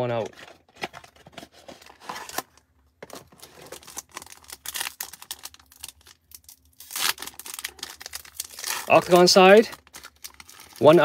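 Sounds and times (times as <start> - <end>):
foil pack crinkling: 0.6 - 11.0
foil pack tearing: 3.6 - 11.0.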